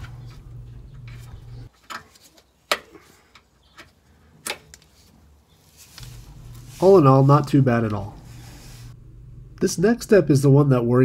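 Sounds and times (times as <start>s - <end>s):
low steady hum: 0.0s - 1.7s, 5.0s - 11.0s.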